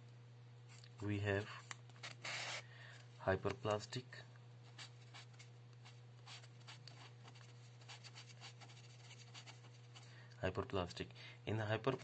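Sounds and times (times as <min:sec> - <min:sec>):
steady low hum: 0:00.0 - 0:12.0
marker scratching on paper: 0:02.0 - 0:02.6, 0:04.8 - 0:10.0.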